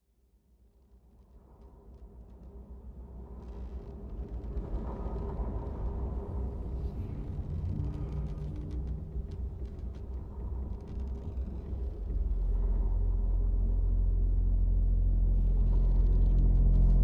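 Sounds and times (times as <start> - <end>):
low rumbling drone: 11.2 - 17.0.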